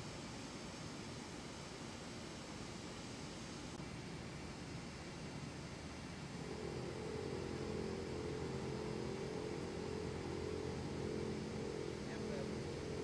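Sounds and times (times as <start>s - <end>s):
machining equipment hum: 0.0s - 13.0s.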